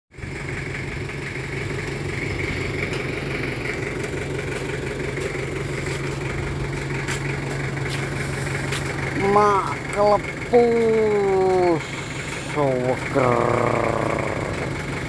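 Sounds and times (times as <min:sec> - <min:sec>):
truck engine idling: 0:00.1 - 0:15.0.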